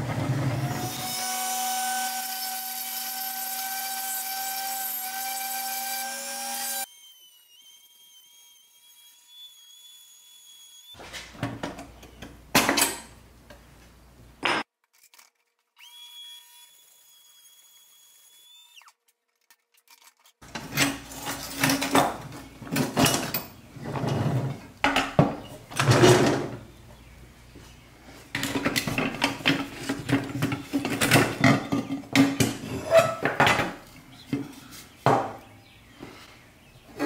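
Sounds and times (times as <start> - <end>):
metal toy parts clattering: 19.3 - 22.0.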